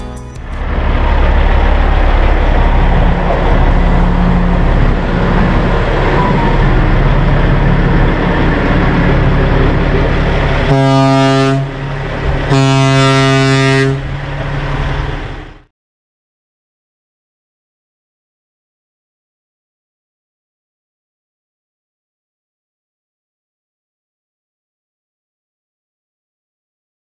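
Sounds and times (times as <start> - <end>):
diesel truck engine pulling away: 0.0 - 15.7
truck horn blasts: 10.6 - 14.2.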